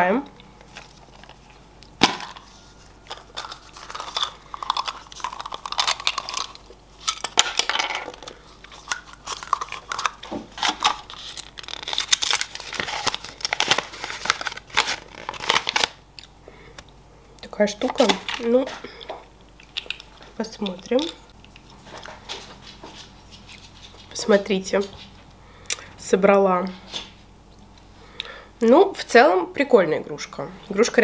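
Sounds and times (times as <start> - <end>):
thin wrapper crinkling and tearing: 0.6 - 16.0, 17.9 - 18.5, 19.4 - 20.3.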